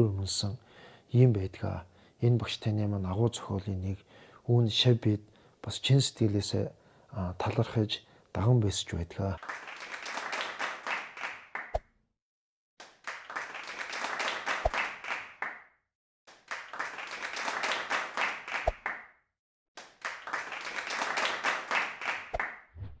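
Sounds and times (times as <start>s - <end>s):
crowd clapping: 9.4s - 11.8s, 12.8s - 15.6s, 16.3s - 19.1s, 19.8s - 22.6s.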